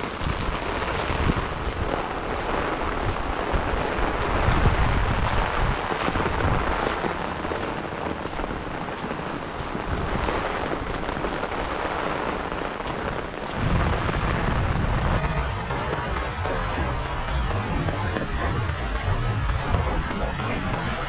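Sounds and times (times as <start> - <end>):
heavy rain hissing: 0.0 - 21.0
low rumble: 13.5 - 21.0.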